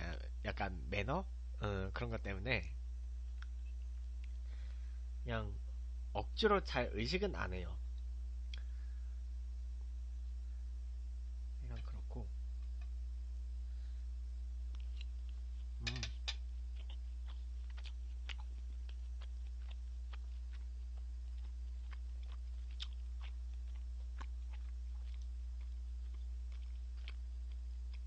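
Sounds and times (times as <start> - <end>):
steady low hum: 0.0 - 28.0
mouth chewing clicks and smacks: 14.7 - 28.0.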